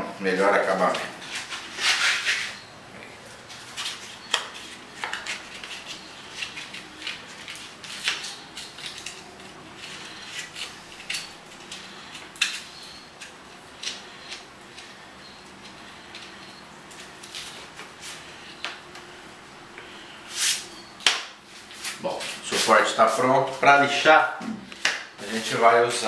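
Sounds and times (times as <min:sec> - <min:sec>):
sandpaper crinkling: 0:01.2 - 0:02.6.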